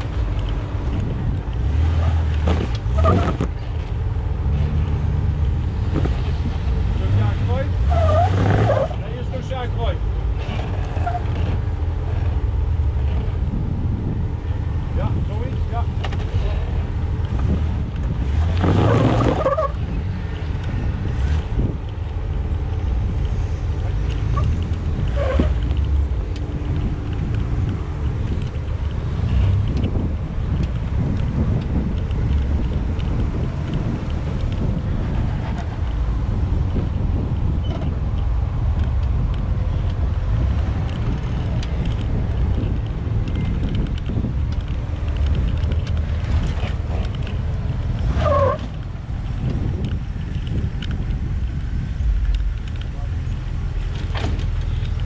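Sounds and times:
engine running at low revs: 0.0s - 55.0s
wind buffeting microphone: 0.0s - 55.0s
falling squeal: 7.9s - 9.0s.

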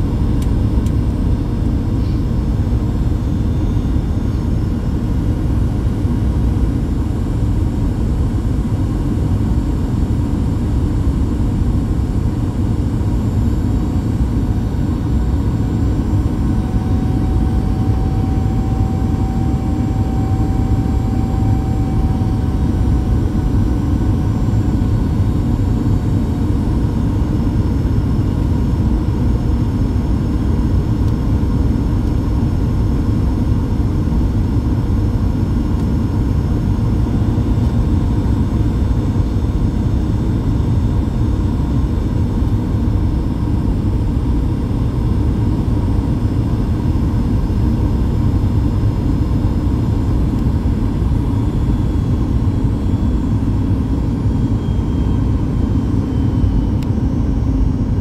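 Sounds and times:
airplane cabin rumble: 0.0s - 58.0s
faint steady tones: 15.8s - 25.0s
faint higher tone: 16.2s - 24.6s.

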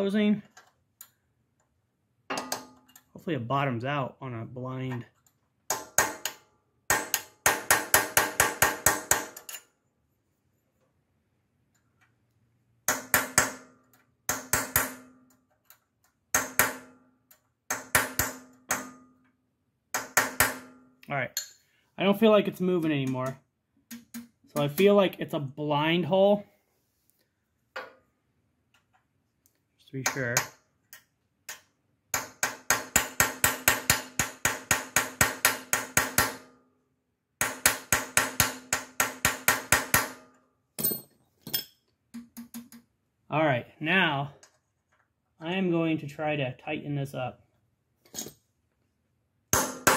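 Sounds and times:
hammer striking steel punch: 5.7s - 9.4s, 12.9s - 15.2s, 16.4s - 17.0s, 17.7s - 19.2s, 20.0s - 20.9s, 32.2s - 36.6s, 49.5s - 49.9s.

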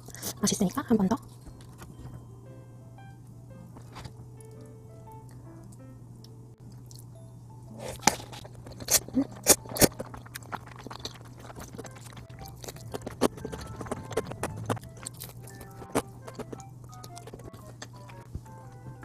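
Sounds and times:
quiet background music: 0.0s - 19.0s
chewing mouth sounds: 7.8s - 18.3s.

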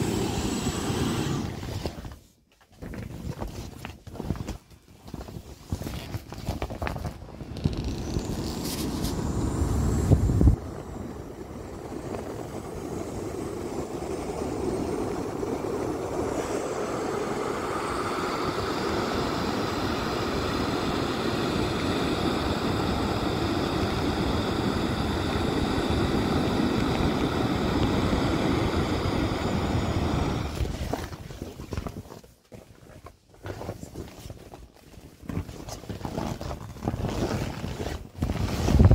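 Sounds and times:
air hissing from inflatable valve: 0.0s - 2.0s, 7.6s - 31.0s.

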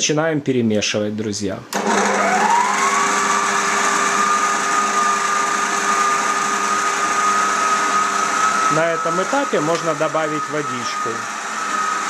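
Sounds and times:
stand mixer motor whining: 1.8s - 12.0s.

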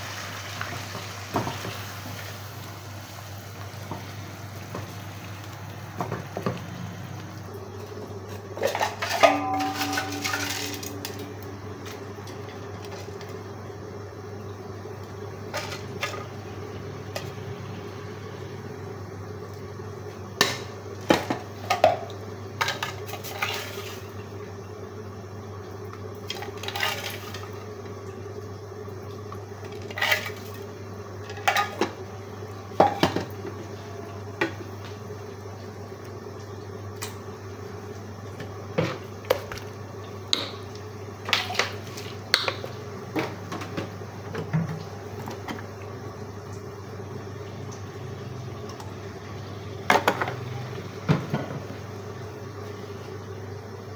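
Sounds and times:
steel pots and utensils clinking: 8.6s - 11.5s.

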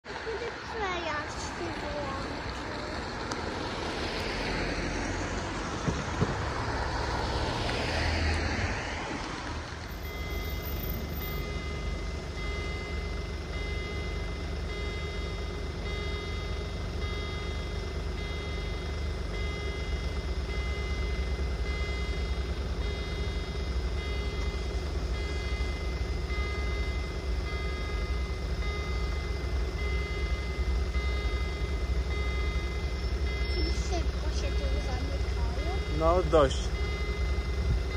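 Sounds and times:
road traffic passing: 0.0s - 37.9s
railway crossing warning signal: 0.1s - 37.9s
low steady rumble: 10.0s - 37.9s.

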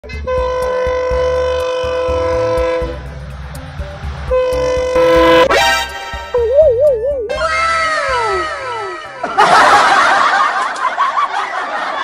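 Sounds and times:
train horn blasts: 0.0s - 3.1s, 4.2s - 6.3s.

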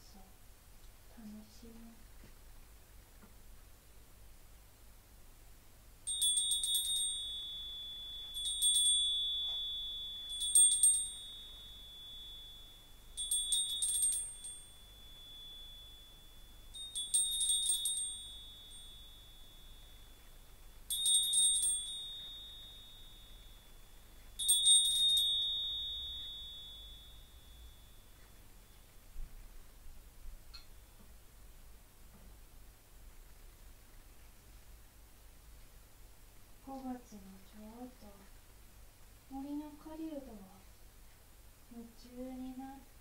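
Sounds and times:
small bell shaken: 6.0s - 29.0s.

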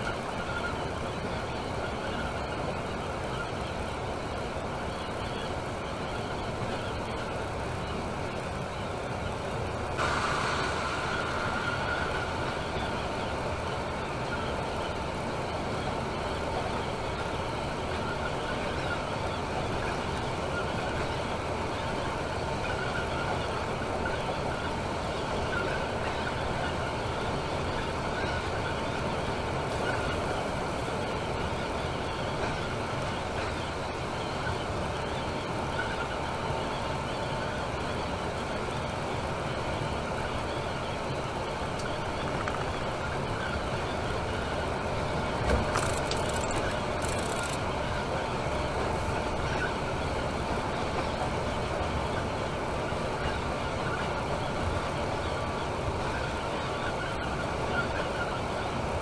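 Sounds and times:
coach road and engine noise: 0.0s - 59.0s
faint whine: 0.0s - 59.0s.

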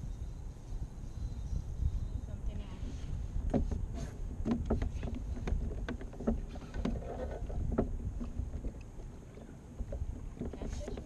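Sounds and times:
wind rumble on microphone: 0.0s - 11.0s
waves lapping against kayak hull: 2.8s - 11.0s.

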